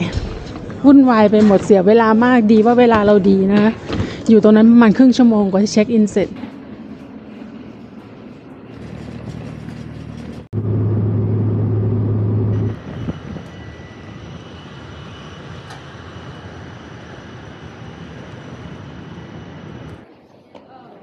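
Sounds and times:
machinery drone: 3.7s - 20.1s
faint high whines: 10.6s - 20.5s.

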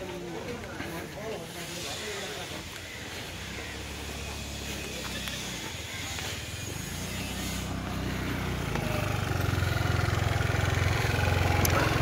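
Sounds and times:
scooter engine idling: 3.4s - 12.0s.

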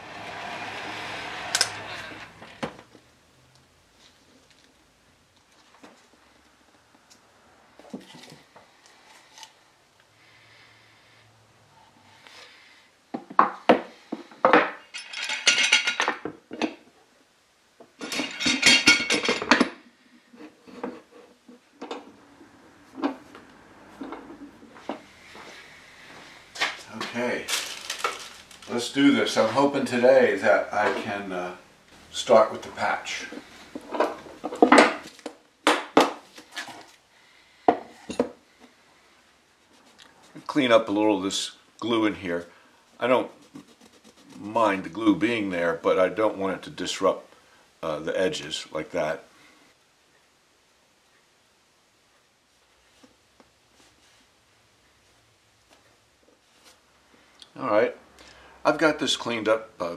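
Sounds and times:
tools and wood clattering on workbench: 13.2s - 16.9s, 17.9s - 19.9s, 21.8s - 22.2s, 22.9s - 25.1s, 26.6s - 28.8s, 33.2s - 36.9s, 37.7s - 38.4s.

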